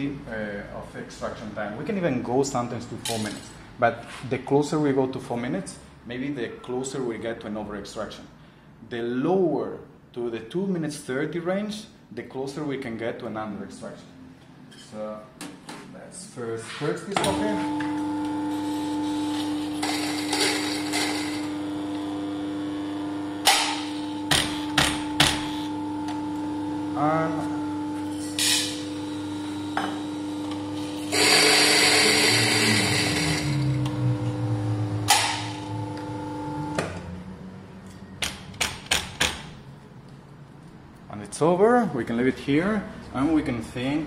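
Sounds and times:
coffee grinder motor hum: 17.6s - 37.2s.

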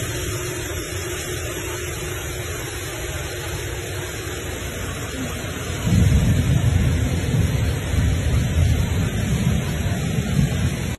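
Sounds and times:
flood water rushing: 0.0s - 10.9s
heavy rain: 0.0s - 10.9s
low rumble: 5.3s - 10.9s.

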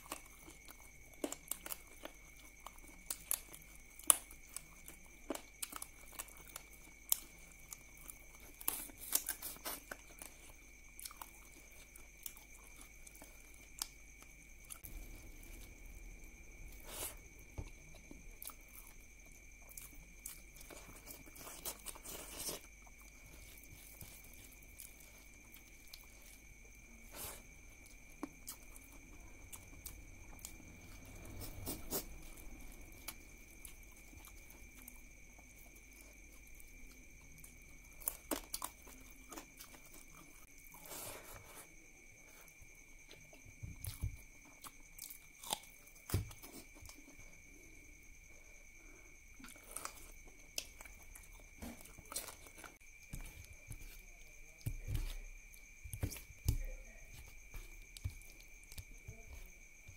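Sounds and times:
person chewing with mouth smacks: 49.3s - 59.9s.

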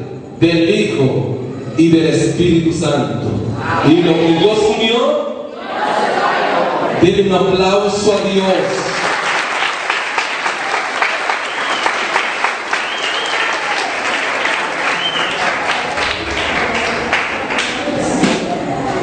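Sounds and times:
crowd applauding: 8.6s - 19.0s.

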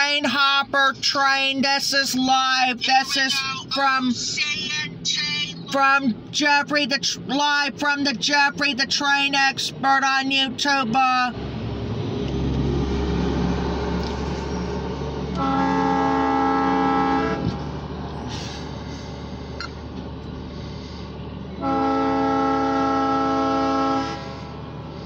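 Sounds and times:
low rumble of passing train: 10.9s - 25.0s
locomotive air horn blasts: 15.3s - 17.6s, 21.6s - 24.6s.

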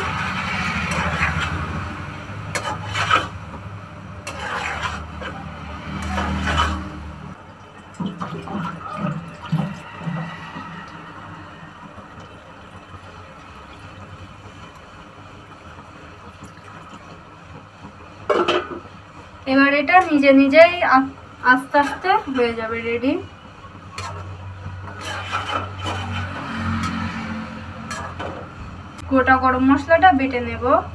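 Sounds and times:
spatula scraping a pan: 0.0s - 1.8s, 2.4s - 3.5s, 4.2s - 7.1s, 23.9s - 24.3s, 24.9s - 28.6s
low hum: 5.0s - 16.4s.

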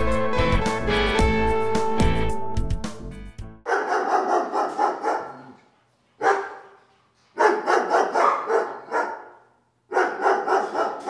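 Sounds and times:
dogs barking: 3.6s - 11.0s.

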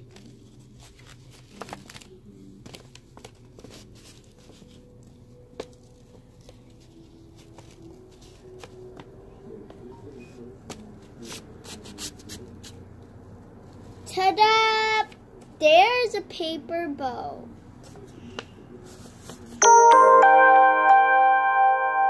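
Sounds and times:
paper rustling and crinkling: 0.0s - 9.1s.

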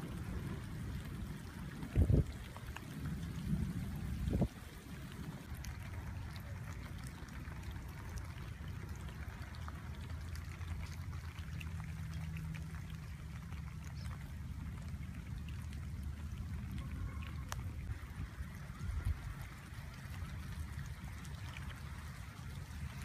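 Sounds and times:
rain on pool and gravel: 0.0s - 23.0s
water trickling: 0.0s - 23.0s.

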